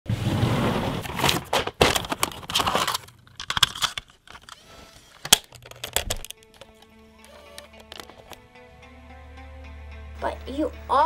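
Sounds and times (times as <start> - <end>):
handling rustling and clattering: 1.0 - 4.6, 5.3 - 6.9
tape cassette clicking into camcorder: 2.2 - 8.4.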